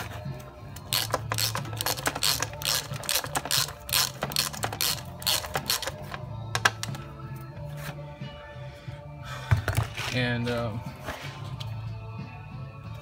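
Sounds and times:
ratcheting screwdriver clicking: 0.9 - 6.0.

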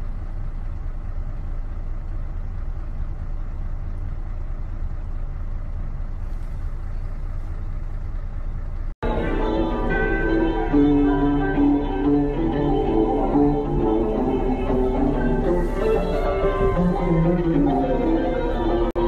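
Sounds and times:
vehicle engine idling: 0.0 - 19.0
plucked-string music: 9.0 - 19.0.

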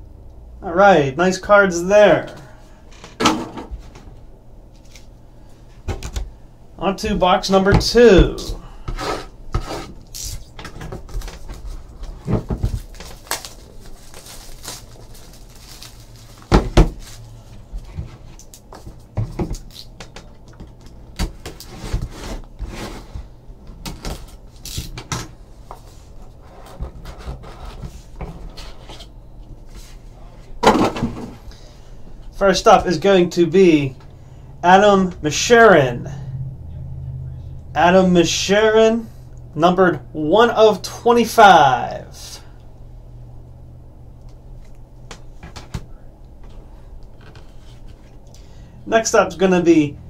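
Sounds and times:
plastic crinkling: 11.1 - 17.7.

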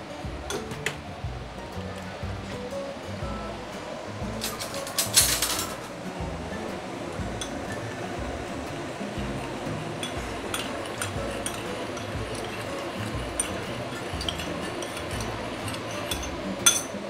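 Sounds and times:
metal spoon clinking ceramic bowl: 9.9 - 17.0.

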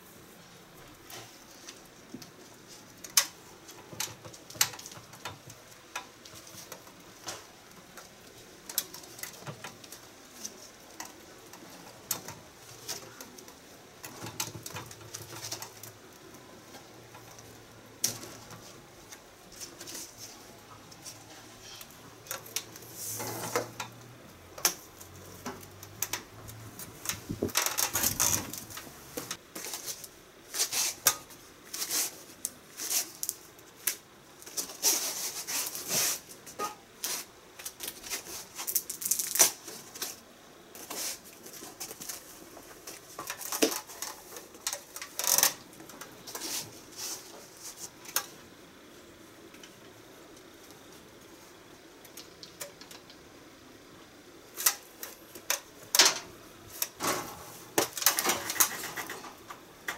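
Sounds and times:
tape being wrapped: 24.6 - 40.2.

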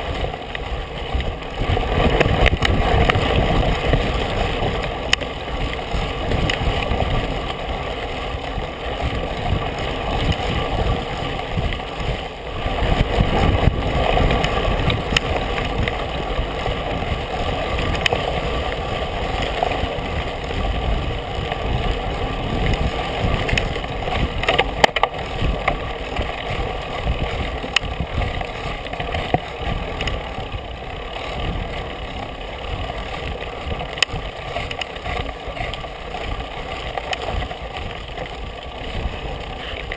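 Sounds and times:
bike rattling over bumps: 0.0 - 39.9
bike tyres rumbling on dirt: 0.0 - 39.9
wind buffeting microphone: 0.0 - 39.9.

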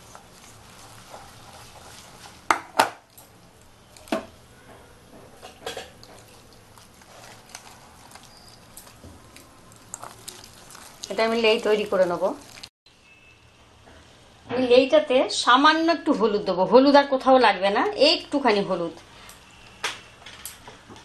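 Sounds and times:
batter mixed by hand in bowl: 0.0 - 2.7, 6.0 - 12.7.

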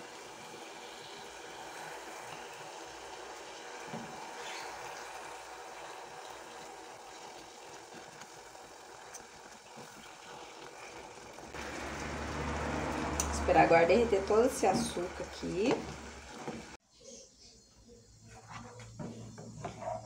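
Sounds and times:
syrup bubbling in pot: 0.0 - 16.8
wooden spoon stirring: 13.6 - 16.8.

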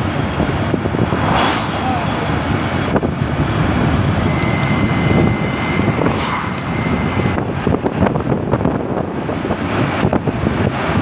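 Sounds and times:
vehicle road noise: 0.0 - 11.0
wind rushing over microphone: 0.0 - 11.0
faint high whistle: 4.2 - 7.4.

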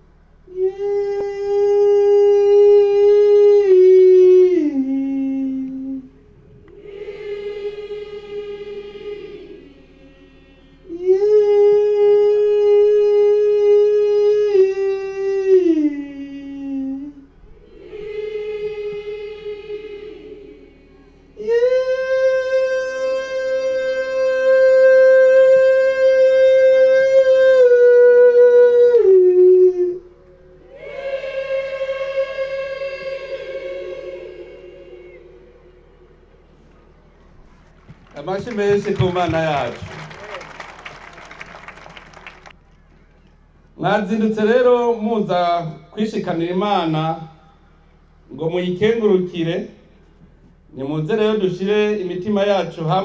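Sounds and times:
person singing a long high note: 0.5 - 6.2, 6.8 - 36.3
crowd singing: 2.4 - 14.9, 17.5 - 26.3, 30.5 - 42.6.

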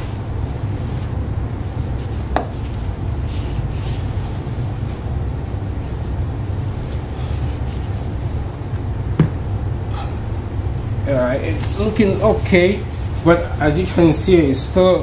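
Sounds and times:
towel wiping plastic lens: 0.0 - 8.7
steady low rumble: 0.0 - 15.0.

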